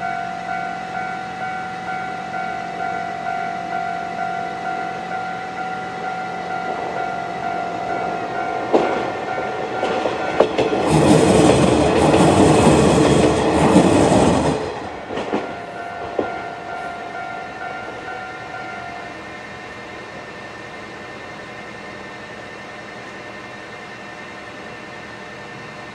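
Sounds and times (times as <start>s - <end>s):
level crossing warning bell: 0.0s - 13.8s, 14.4s - 19.6s
diesel train rolling through: 0.0s - 25.9s
wheel clacks over rail joints: 8.6s - 16.5s.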